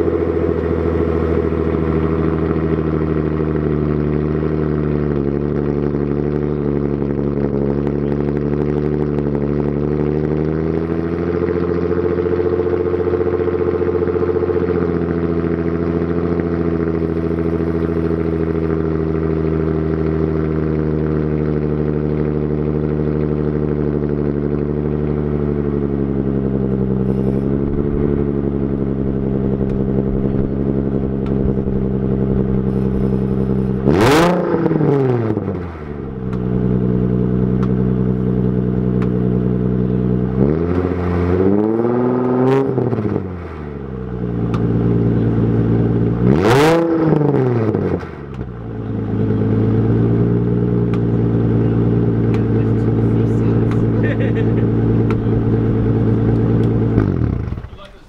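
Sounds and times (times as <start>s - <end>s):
car engine idling: 0.0s - 58.0s
car engine revving: 0.0s - 58.0s.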